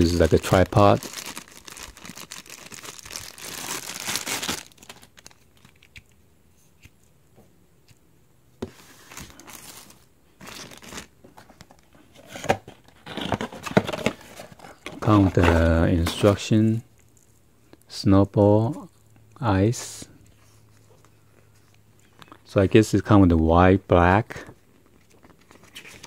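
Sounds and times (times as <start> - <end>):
plastic wrapping crinkling: 0.0 - 6.0, 9.1 - 11.1.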